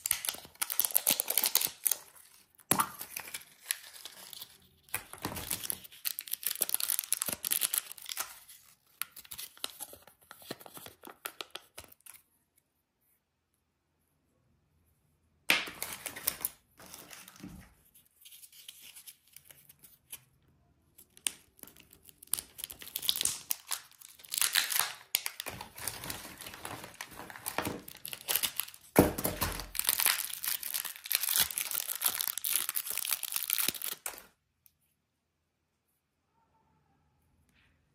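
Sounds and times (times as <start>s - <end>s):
wrappers crinkling and tearing: 0.0s - 9.9s, 21.2s - 34.3s.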